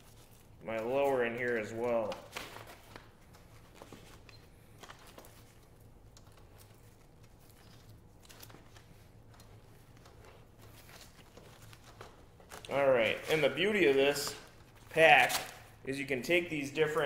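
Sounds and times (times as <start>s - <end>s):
low steady hum: 0.0s - 17.0s.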